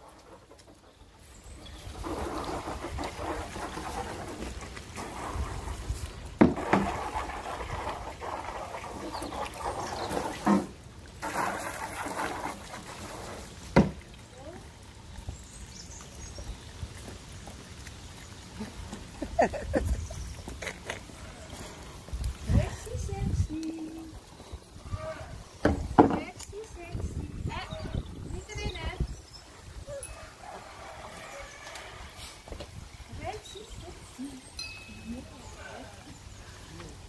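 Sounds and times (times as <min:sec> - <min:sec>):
water sloshing and trickling: 0:00.0 - 0:37.0.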